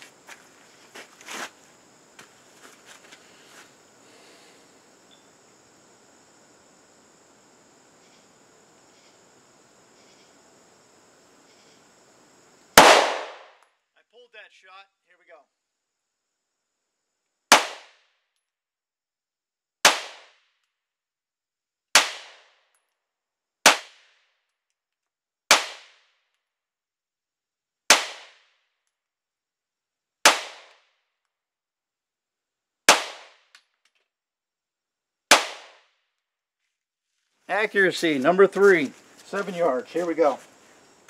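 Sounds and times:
pistol shots: 12.8 - 13.6, 32.9 - 33.4, 35.3 - 35.8.

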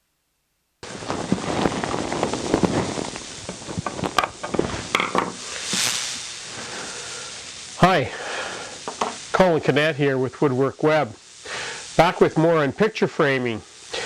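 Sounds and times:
brief hiss: 0.8 - 9.9, 11.3 - 12.6.

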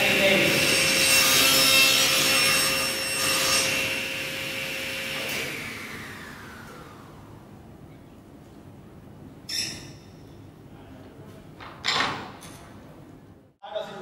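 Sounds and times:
table saw spinning down: 2.4 - 7.3.

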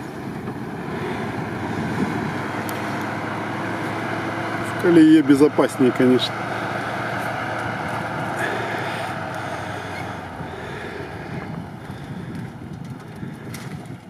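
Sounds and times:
truck engine running: 0.0 - 14.0
wind on microphone: 0.1 - 3.2, 9.6 - 14.0.

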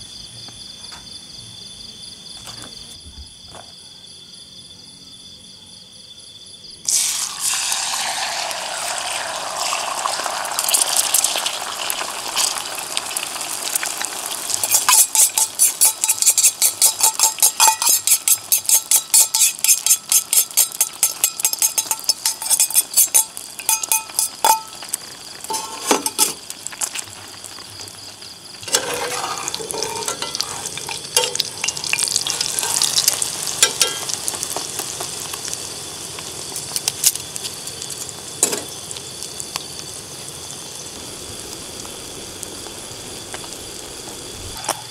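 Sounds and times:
eggs sizzling in a skillet: 6.8 - 44.9
utensil beating eggs in a pan: 6.9 - 24.9, 28.5 - 35.5
spatula scraping a pan: 14.6 - 24.7, 25.5 - 26.4, 28.6 - 34.1.

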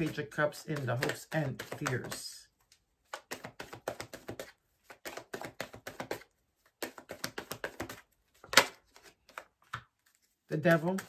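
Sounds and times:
cards tapping on a table: 0.8 - 2.3, 3.1 - 9.9.

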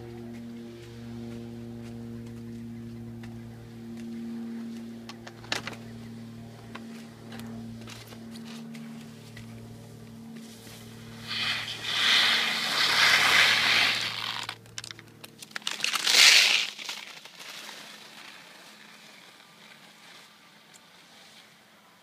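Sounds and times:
skis scraping over snow: 10.3 - 14.6, 15.6 - 22.0.

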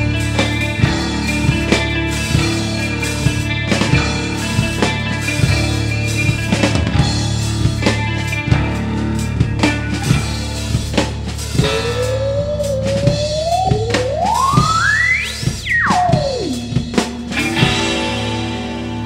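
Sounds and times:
psychedelic rock instrumental: 0.0 - 19.0
effected guitar tone sliding up: 11.6 - 19.0.

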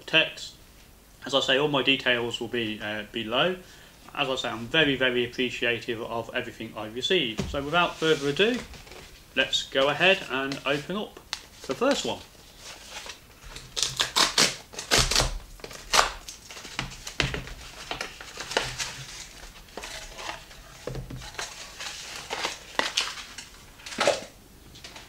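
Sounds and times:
packaging crinkling: 10.1 - 25.0
cardboard tearing: 11.9 - 24.2.

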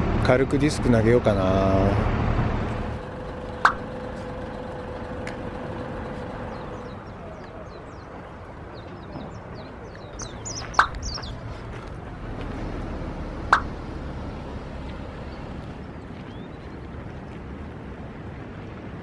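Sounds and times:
low steady rumble: 0.0 - 8.4, 10.2 - 19.0
small birds chirping: 3.0 - 12.0, 12.9 - 17.1
sharp clicks: 13.5 - 13.8.

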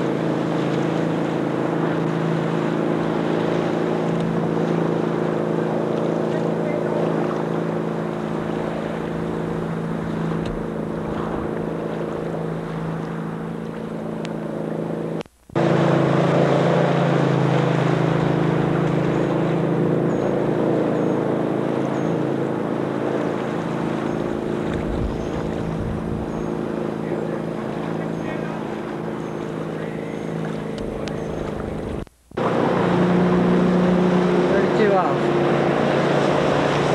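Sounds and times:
motorboat engine running: 0.0 - 36.9
wind noise on microphone: 24.5 - 26.6.

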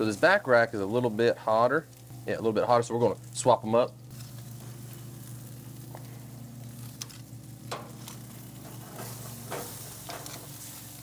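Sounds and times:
meat sizzling on a grill: 0.0 - 11.0
steady low hum: 0.0 - 11.0
sharp clicks of grill racks: 5.9 - 11.0.

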